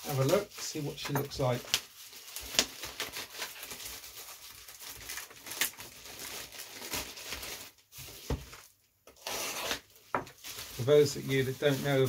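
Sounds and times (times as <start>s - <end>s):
plastic bag rustling and crinkling: 0.0s - 8.7s, 9.7s - 12.0s.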